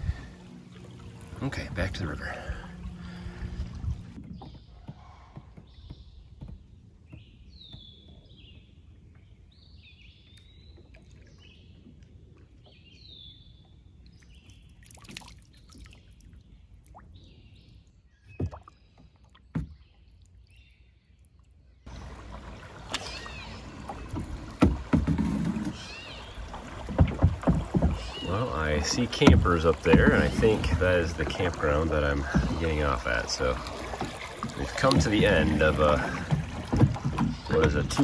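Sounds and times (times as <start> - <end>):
rush of water and wind: 0.0 - 4.5, 21.9 - 38.0
kayak drifting on river: 0.0 - 38.0
songbirds chirping: 0.0 - 38.0
water drips: 14.0 - 17.3, 18.4 - 25.0, 25.7 - 38.0.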